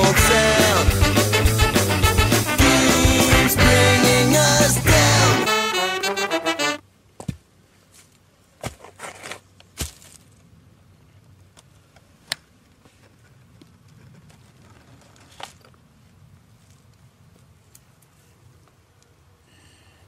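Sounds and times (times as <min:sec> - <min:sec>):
footsteps on dry leaves: 0:09.0 - 0:10.4.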